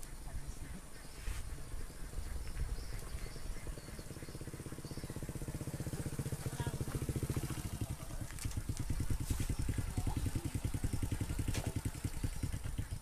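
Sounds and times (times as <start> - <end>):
small engine idling: 2.8 - 13.0.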